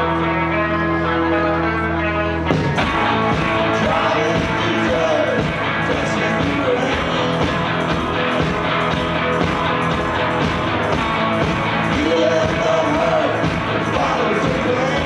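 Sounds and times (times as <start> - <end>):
man singing: 0.0 - 7.8, 11.9 - 15.0
electric guitar: 0.0 - 15.0
rock band playing: 0.0 - 15.0.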